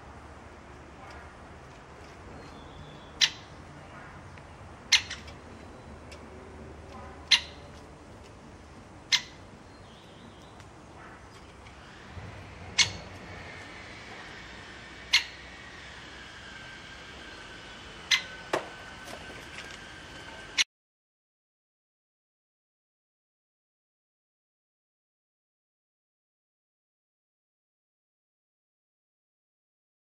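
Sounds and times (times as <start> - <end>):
woodpecker sharp call notes: 2.4 - 7.8, 9.1 - 12.0, 12.7 - 18.8.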